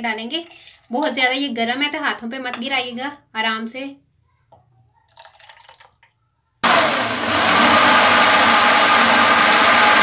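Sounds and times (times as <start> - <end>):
liquid ladled into glass jar: 5.0 - 6.1
electric blender running: 6.6 - 10.0.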